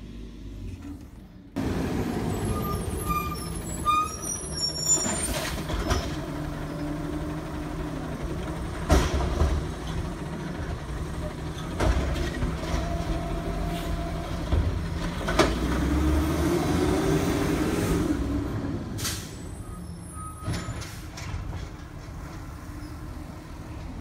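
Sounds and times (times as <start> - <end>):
garbage truck engine running: 1.2 - 16.1
high squeals: 2.3 - 6.2.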